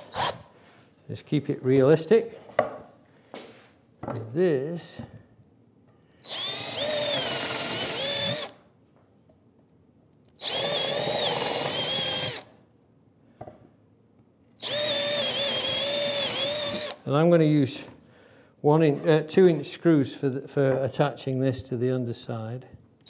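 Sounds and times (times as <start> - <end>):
cordless drill whining: 0.0 - 0.5, 6.2 - 8.6, 10.4 - 12.5, 14.6 - 17.0.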